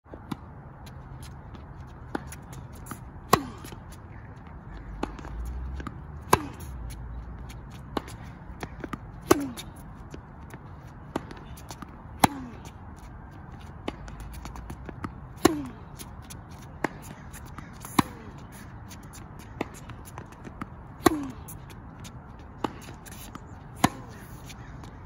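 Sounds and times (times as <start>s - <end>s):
tennis racket hits: 21.0s - 21.6s, 22.6s - 24.5s.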